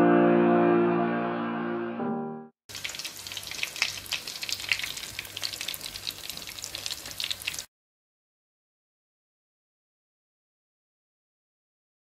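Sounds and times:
piano music: 0.0s - 2.6s
food deep-frying in bubbling oil: 2.7s - 7.7s.

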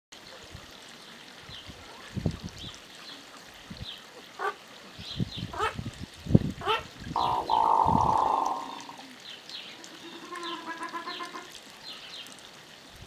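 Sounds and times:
duck rising pulsed calls: 7.2s - 9.0s.

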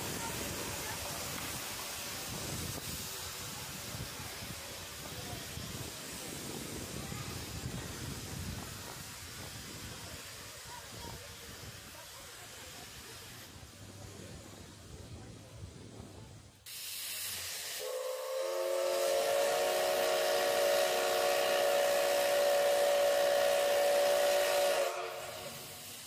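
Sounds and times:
steam hissing: 0.0s - 15.1s, 16.5s - 26.0s
steam whistle blast: 17.6s - 26.0s.

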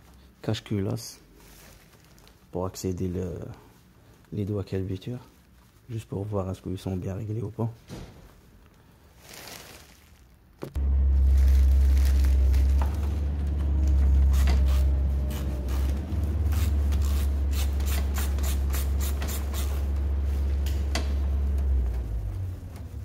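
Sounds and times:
steady low hum: 10.6s - 23.0s.

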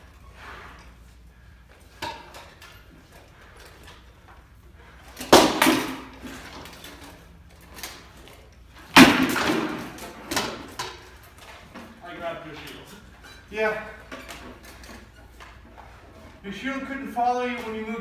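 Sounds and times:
swords and shields clashing: 5.2s - 7.0s, 8.9s - 11.2s.

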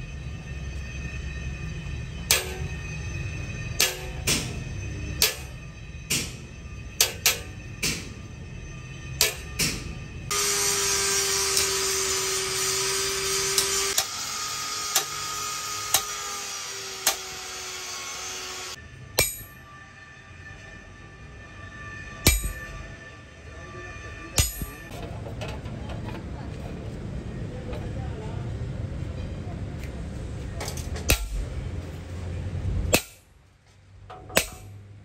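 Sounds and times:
hammer tapping metal punch: 3.8s - 4.5s, 5.2s - 6.4s, 7.0s - 8.1s, 9.2s - 9.9s, 19.2s - 19.6s, 24.4s - 24.9s, 34.1s - 34.8s
loud hiss with humming tone: 10.3s - 18.8s.

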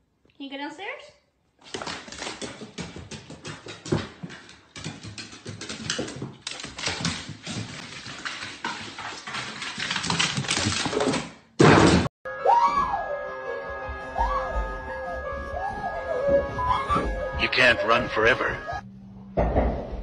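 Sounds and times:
dog claws clattering on stairs: 1.6s - 11.3s.

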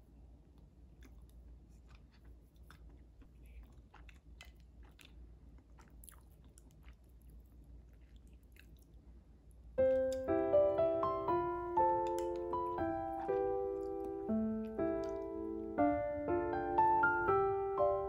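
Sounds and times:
person chewing and biting: 1.0s - 9.0s
electric piano music: 9.8s - 18.0s.

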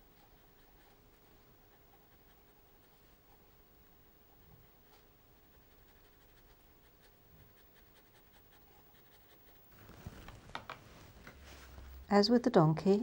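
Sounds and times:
paintbrush strokes on paper: 0.0s - 3.6s, 4.2s - 12.2s
rustling with light clicks: 9.7s - 12.1s.

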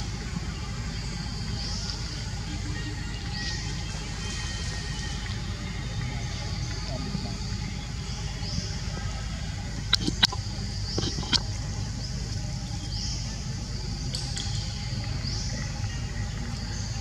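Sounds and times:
high buzzing drone: 0.0s - 17.0s.

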